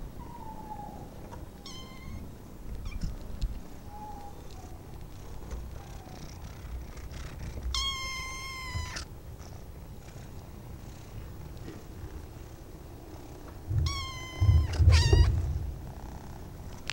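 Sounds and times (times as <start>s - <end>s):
kitten meowing: 1.6s - 2.2s, 7.7s - 9.1s, 13.7s - 15.8s
low rumble: 13.6s - 16.7s.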